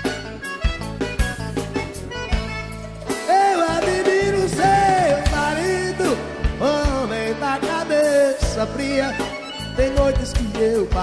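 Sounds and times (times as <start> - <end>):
live band music: 0.0 - 11.0
sustained bass notes: 0.0 - 11.0
drum hits: 0.8 - 7.3.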